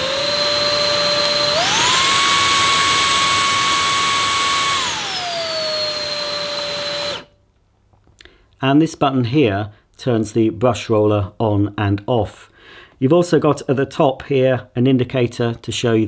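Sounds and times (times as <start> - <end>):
vacuum cleaner motor whine: 0.0 - 7.3.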